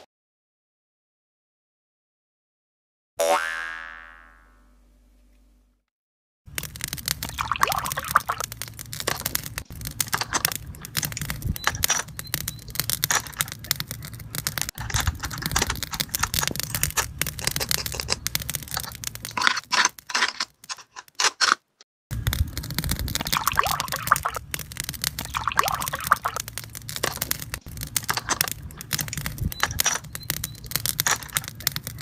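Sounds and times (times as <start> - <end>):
plastic toy pieces clicking: 6.5 - 32.0.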